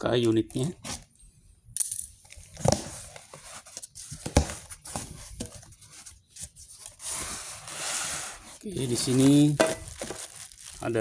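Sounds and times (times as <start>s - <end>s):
cardboard rustling and crackling: 2.6s - 11.0s.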